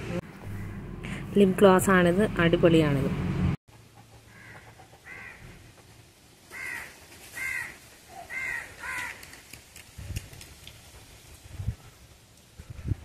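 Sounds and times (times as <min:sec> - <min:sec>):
crow cawing: 0:04.3 - 0:05.6, 0:06.5 - 0:09.2.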